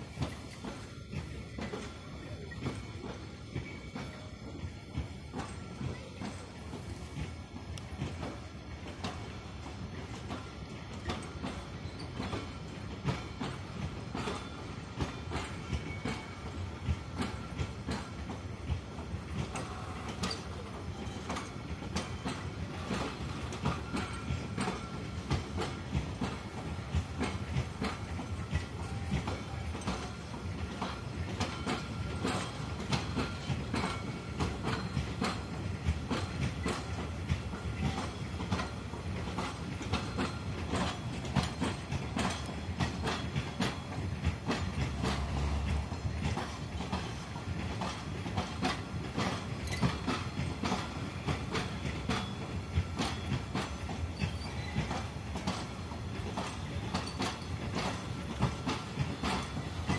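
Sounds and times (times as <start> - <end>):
train wheels rolling on rails: 0.0 - 59.9.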